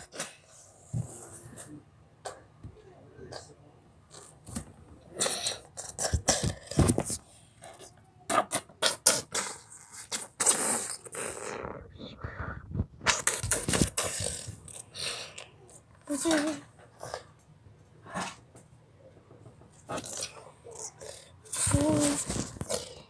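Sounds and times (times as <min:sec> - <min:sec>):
mouth-made hissing and puffing: 0:08.8 - 0:15.4.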